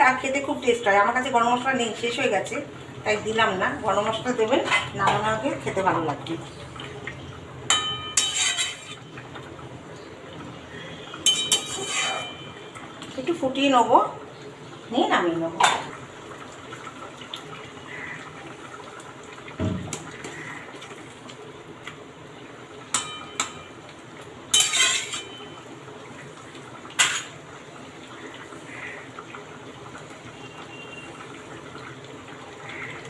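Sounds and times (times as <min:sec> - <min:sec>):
curry simmering in pan: 0:00.0 - 0:33.0
metal clinking against pan: 0:07.7 - 0:09.0, 0:11.2 - 0:12.6, 0:22.9 - 0:23.7, 0:24.5 - 0:25.5
clatter of stirring: 0:07.7 - 0:09.1, 0:11.2 - 0:12.4, 0:24.5 - 0:25.4.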